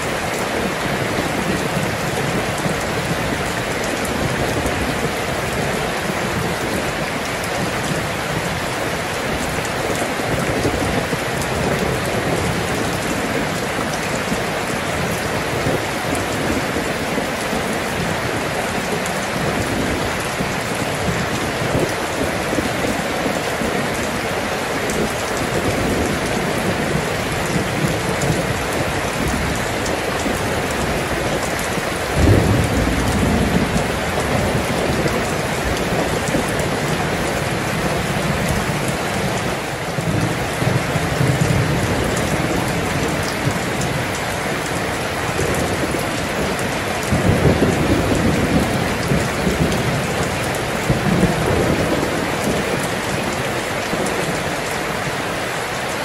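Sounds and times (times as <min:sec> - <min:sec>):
heavy rainfall: 0:00.0 - 0:56.0
thunder rumbling: 0:24.9 - 0:54.8.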